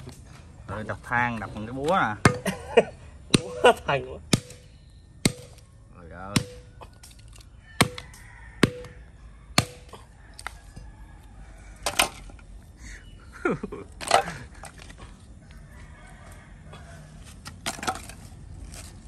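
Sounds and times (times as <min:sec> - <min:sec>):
charcoal cracking and crunching: 0:06.3 - 0:09.0, 0:09.6 - 0:10.6, 0:13.9 - 0:15.2, 0:16.8 - 0:19.0.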